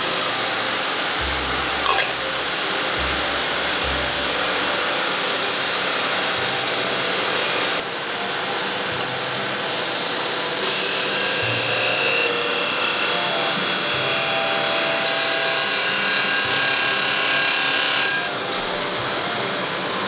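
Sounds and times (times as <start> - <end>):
high hiss: 0.0 - 7.8
polishing machines whirring: 0.0 - 20.0.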